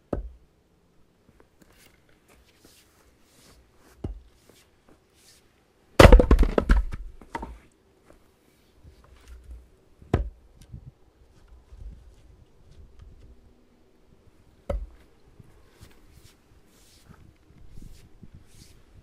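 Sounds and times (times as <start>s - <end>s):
axe chopping firewood: 0.1s - 0.4s, 6.0s - 7.5s, 10.1s - 10.4s, 14.6s - 15.0s
wood cracking and knocking: 6.0s - 7.6s.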